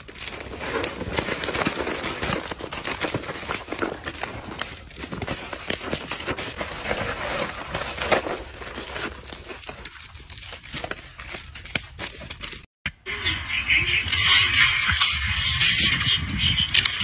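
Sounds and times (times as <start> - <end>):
plastic wrappers crinkling: 0.0 - 12.7.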